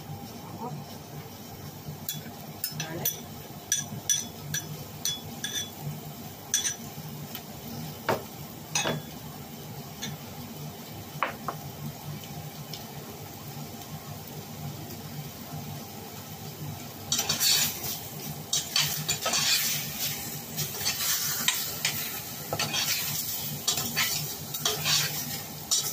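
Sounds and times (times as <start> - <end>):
metal spoon clinking on saucepan: 2.1 - 5.8, 6.5 - 6.8.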